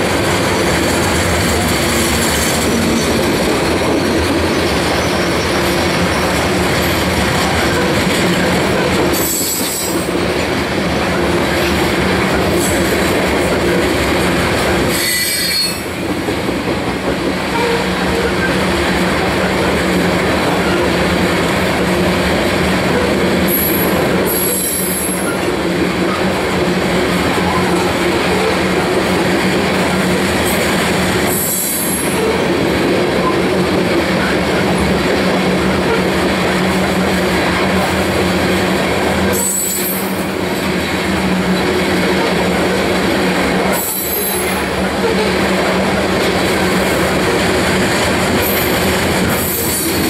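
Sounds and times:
steel wheels rumbling on rail: 0.0 - 50.0
wheel squeals: 14.9 - 15.9.

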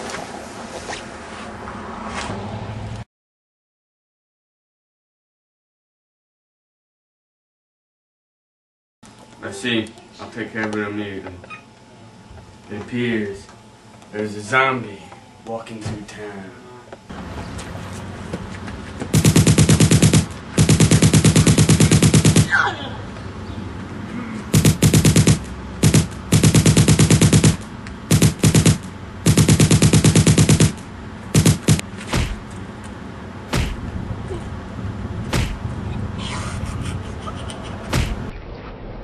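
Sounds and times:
machine-gun fire: 19.1 - 22.6, 24.5 - 32.4, 35.3 - 35.6
single gunshots: 19.2 - 22.6, 24.5 - 32.4, 33.5 - 33.8, 35.3 - 35.6.

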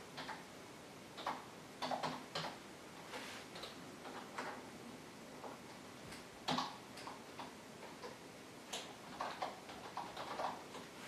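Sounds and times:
keyboard typing clicks: 5.4 - 10.9.

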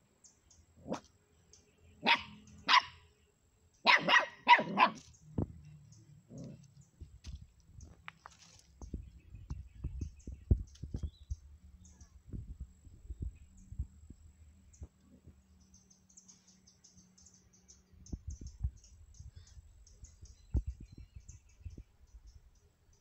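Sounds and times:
puppy yapping: 2.0 - 2.9, 3.8 - 5.1
scuffling: 6.4 - 9.0.

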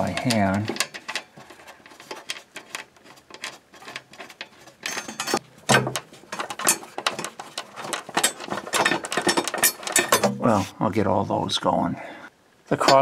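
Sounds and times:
metal clicks and scrapes: 0.0 - 10.4.

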